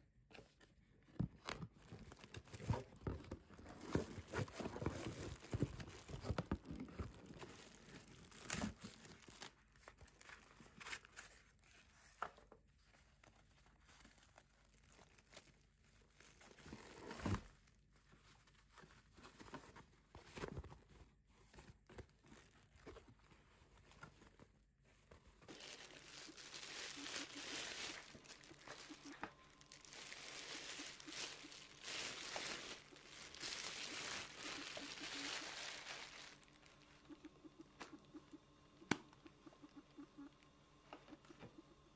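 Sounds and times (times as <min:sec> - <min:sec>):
plastic packaging crinkling: 0:01.4 - 0:11.5, 0:25.2 - 0:37.8.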